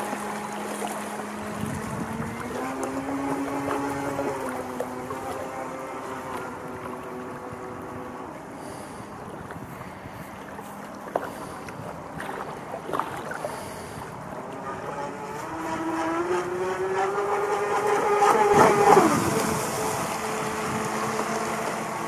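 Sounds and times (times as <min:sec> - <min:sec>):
model speedboat motor whine: 0:00.0 - 0:22.0.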